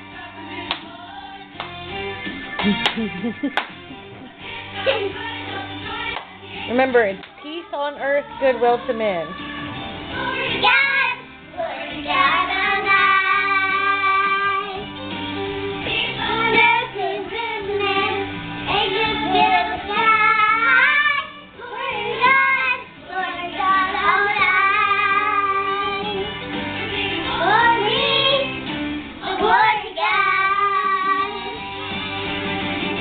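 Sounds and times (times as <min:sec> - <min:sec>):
girls singing loudly: 0:09.3 - 0:14.9, 0:15.8 - 0:26.3, 0:27.0 - 0:28.6, 0:29.2 - 0:31.6.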